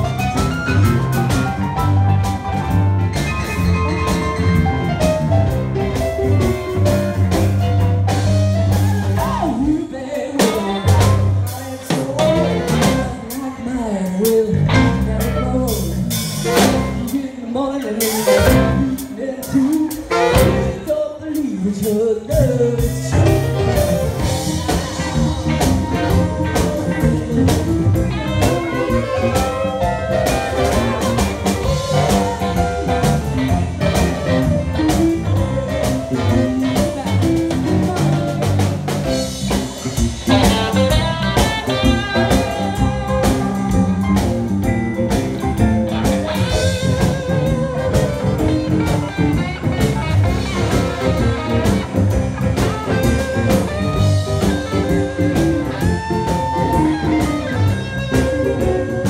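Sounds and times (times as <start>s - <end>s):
electric keyboard: 0.0s - 17.4s, 22.3s - 59.0s
bass guitar: 0.0s - 59.0s
drum kit: 0.0s - 59.0s
woman singing into a microphone: 9.2s - 16.2s, 17.0s - 23.3s.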